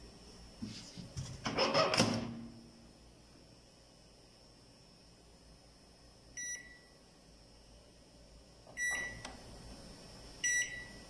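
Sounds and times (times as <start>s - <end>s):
microwave control panel beeps: 6.4s - 7.0s, 8.7s - 9.4s, 10.4s - 11.0s.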